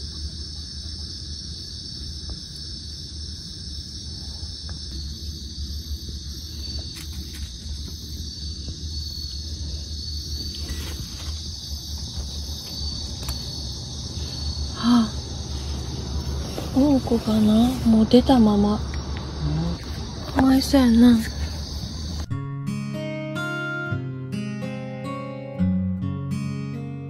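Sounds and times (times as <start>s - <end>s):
crickets trilling: 0.0s - 22.3s
low steady rumble: 11.5s - 22.3s.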